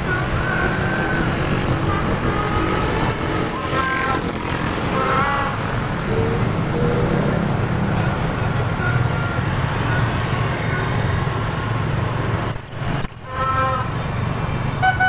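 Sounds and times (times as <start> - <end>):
wind rushing on microphone: 0.0 - 8.8
motorbike engines: 0.0 - 15.0.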